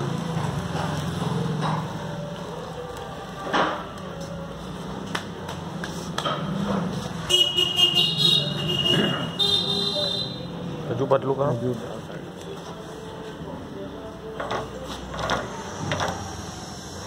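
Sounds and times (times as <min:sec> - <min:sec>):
high horn-like beeping tone: 0:07.3 - 0:10.5.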